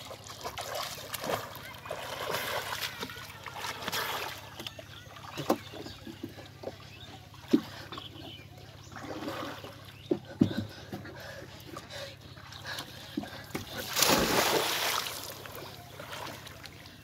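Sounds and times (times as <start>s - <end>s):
water splashing: 0.0s - 7.9s, 13.3s - 17.0s.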